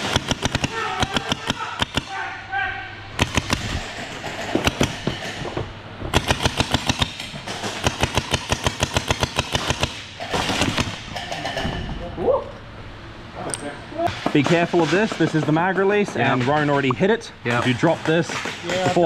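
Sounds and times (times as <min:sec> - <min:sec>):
gel blasters firing rapid bursts: 0:00.0 - 0:02.1, 0:03.2 - 0:04.0, 0:06.1 - 0:07.2.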